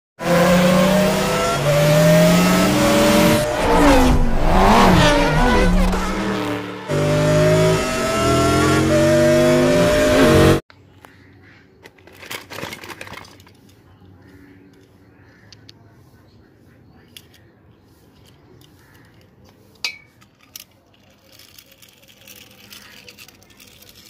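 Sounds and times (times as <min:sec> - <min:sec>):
race car engines at high revs: 0:00.2 - 0:10.6.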